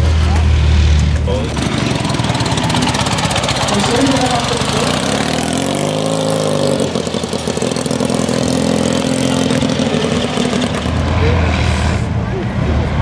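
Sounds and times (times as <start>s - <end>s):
motorcycle engine pulling away: 0.2s - 11.4s.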